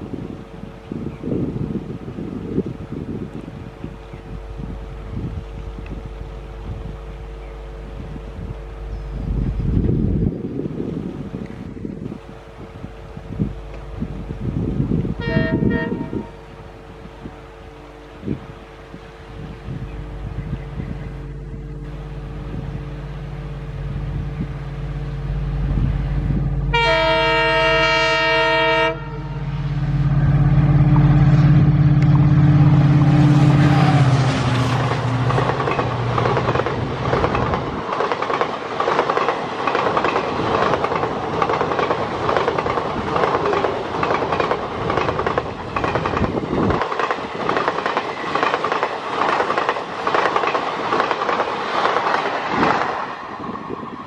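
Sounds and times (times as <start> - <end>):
diesel locomotive engine: 0.0 - 54.0
train horn: 15.2 - 16.7, 17.3 - 20.3, 26.6 - 35.2
wheels clacking on rails: 29.6 - 54.0.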